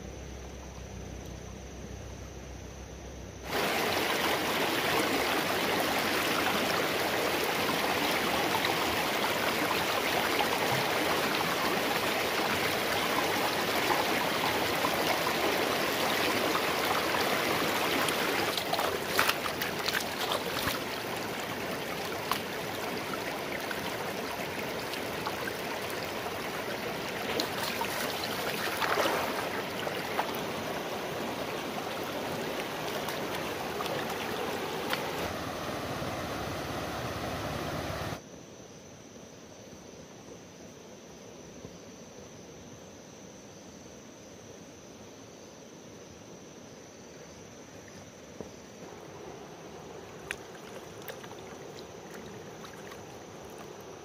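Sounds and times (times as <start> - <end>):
stream running over stones: 3.4 - 38.2, 47.9 - 54.0
water splashes: 3.5 - 38.2, 48.8 - 54.0.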